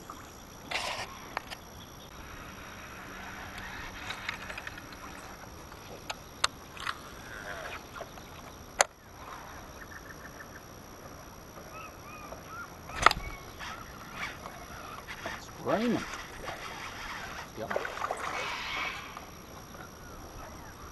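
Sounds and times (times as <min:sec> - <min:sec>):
birds calling faintly: 0:00.0 - 0:20.9
fishing reel clicks and knocks: 0:03.3 - 0:07.0.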